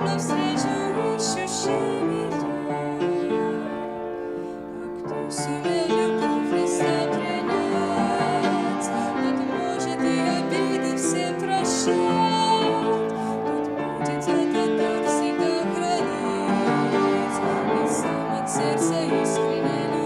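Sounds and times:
piano accompaniment: 0.0 - 20.0
woman singing: 0.0 - 20.0.

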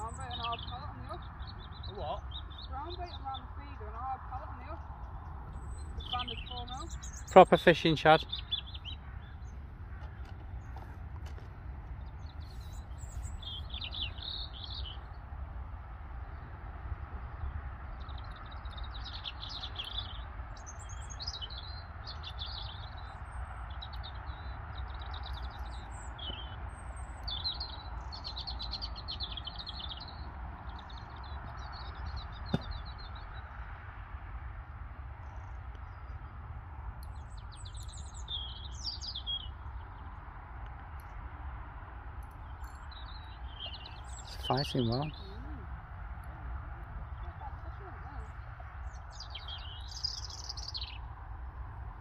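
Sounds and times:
small birds chirping: 0.0 - 33.9, 34.7 - 52.0.

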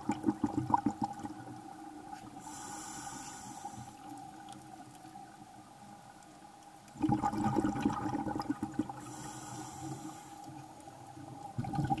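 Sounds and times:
faint underwater hum: 0.0 - 12.0
gurgling rush of bubbles: 7.0 - 9.1, 11.5 - 12.0.

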